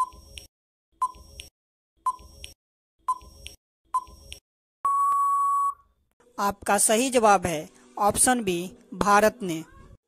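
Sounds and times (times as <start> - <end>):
long steady beep: 4.8 - 5.8.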